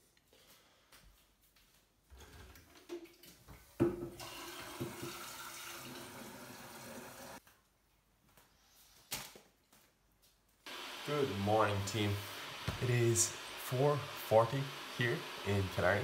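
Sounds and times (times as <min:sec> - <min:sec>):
tap running water into kettle: 0:03.8 - 0:07.4, 0:12.6 - 0:13.0.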